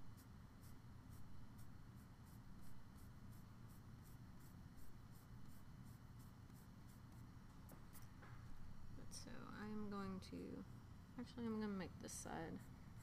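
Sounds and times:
pencil scratching on paper: 0.1s - 7.3s.

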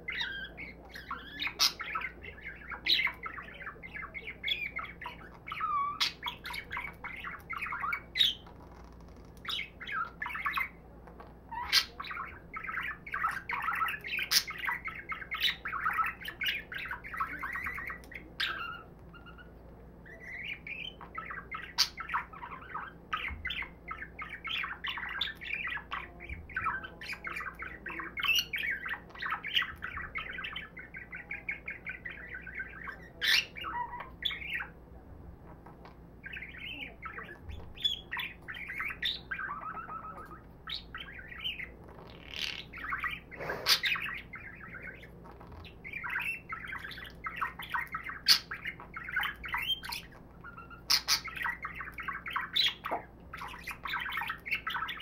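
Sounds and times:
budgerigar warbling: 20.1s - 34.8s, 36.2s - 55.0s.

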